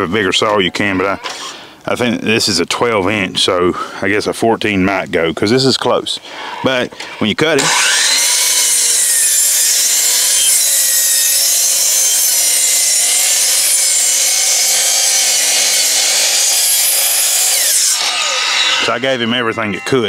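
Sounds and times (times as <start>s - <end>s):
miter saw cutting wood: 7.6s - 20.0s.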